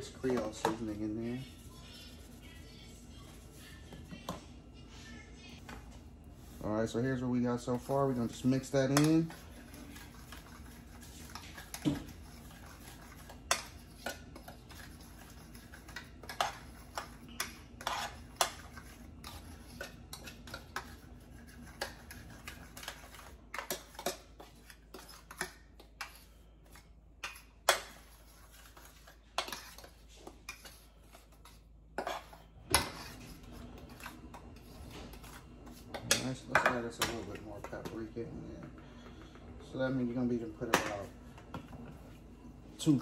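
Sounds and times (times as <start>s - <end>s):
fork scraping a metal pan: 7.8s - 37.3s.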